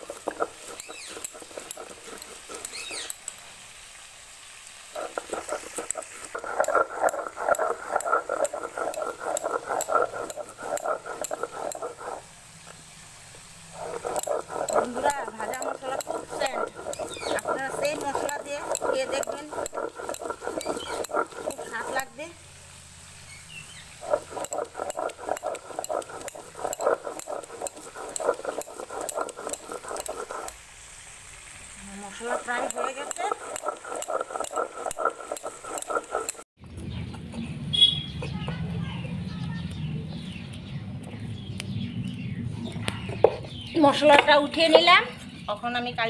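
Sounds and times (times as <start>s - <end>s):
stone roller grinding on stone slab: 0.0s - 3.4s, 4.9s - 12.7s, 13.7s - 22.4s, 23.8s - 30.6s, 31.8s - 36.5s.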